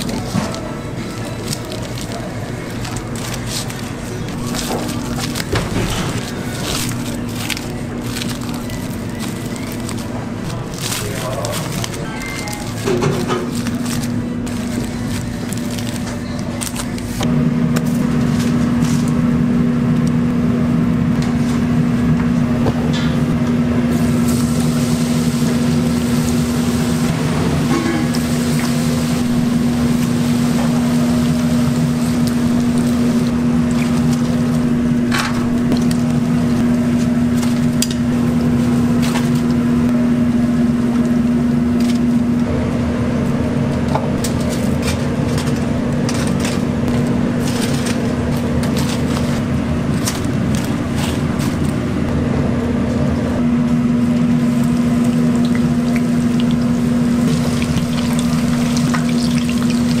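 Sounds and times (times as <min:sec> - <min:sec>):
utensils clicking and clinking: 0:00.0 - 0:17.3
machine hum: 0:00.0 - 1:00.0.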